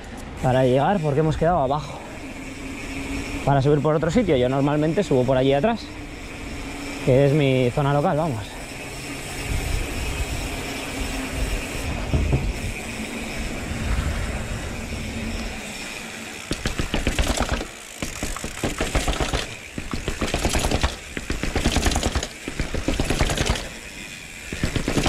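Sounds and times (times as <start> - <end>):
wind rush: 9.3 - 15.8
rapid rattling clicks: 16.4 - 25.0.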